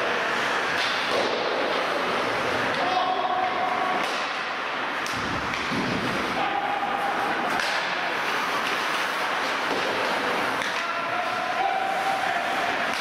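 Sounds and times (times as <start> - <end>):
skates scraping on ice: 0.0 - 13.0.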